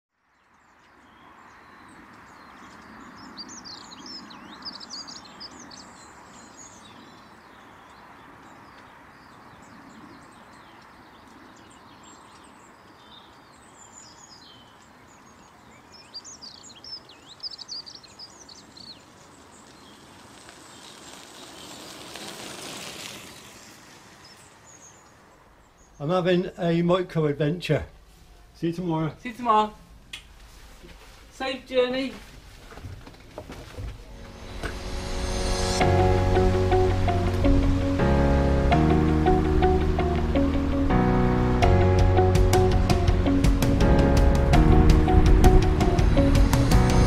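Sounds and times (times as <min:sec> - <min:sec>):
outdoor background noise: 0:00.1 - 0:47.0
birds singing and chirping: 0:00.4 - 0:22.3, 0:23.4 - 0:26.9
rushing noise: 0:34.0 - 0:47.0.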